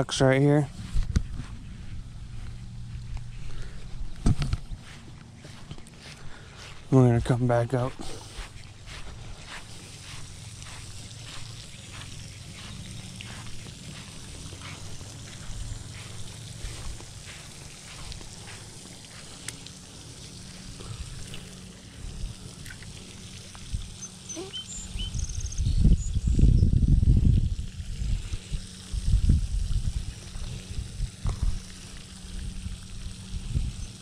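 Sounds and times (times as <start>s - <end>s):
footsteps on lawn: 0.1s - 24.6s
low rumble: 0.6s - 6.9s.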